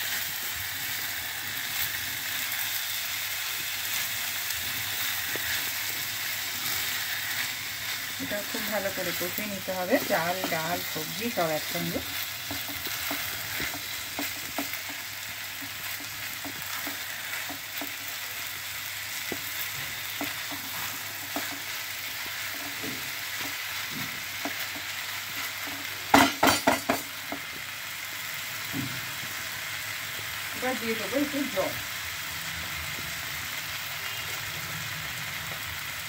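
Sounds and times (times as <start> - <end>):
food sizzling in a pan: 0.0 - 36.0
spatula scraping a pan: 3.9 - 18.2, 19.1 - 26.2.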